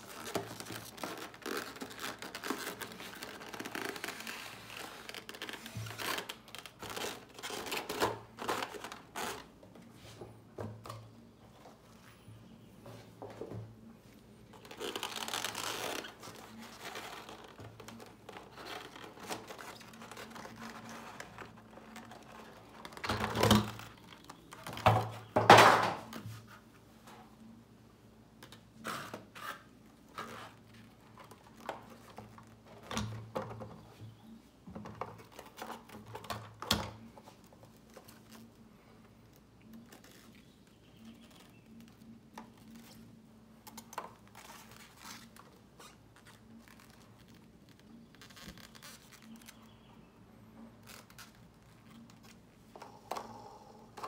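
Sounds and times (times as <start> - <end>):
cloth rustling: 0.0 - 7.7, 14.0 - 23.0
plastic packaging crinkling: 0.0 - 9.5, 14.6 - 24.9.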